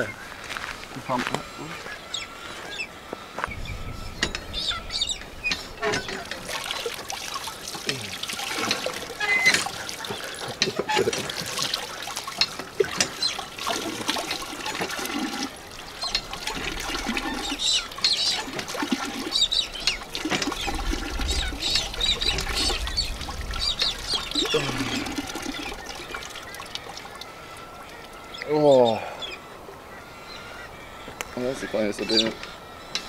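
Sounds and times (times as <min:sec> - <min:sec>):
pump handle working: 0:04.2 - 0:04.6, 0:05.5 - 0:28.6
water pouring and splashing: 0:04.2 - 0:28.6.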